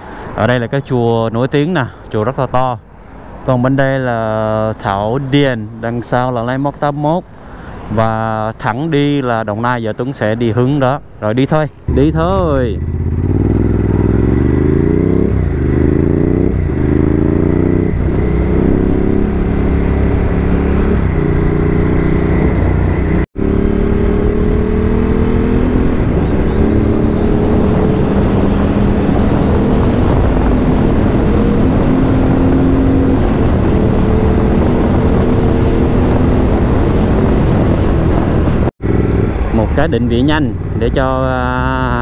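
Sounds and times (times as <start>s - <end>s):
motorcycle engine accelerating: 11.9s - 42.0s.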